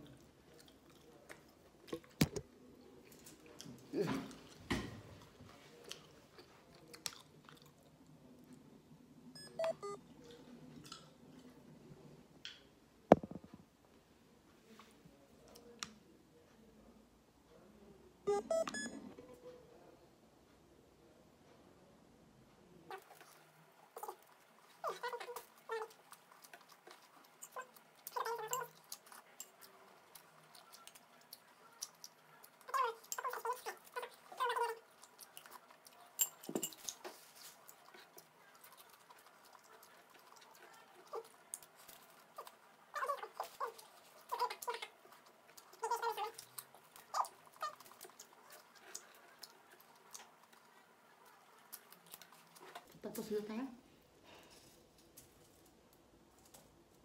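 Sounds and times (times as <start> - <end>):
chewing and lip-smacking: 0.0 - 2.4, 5.5 - 8.6, 9.8 - 11.6, 22.9 - 53.0.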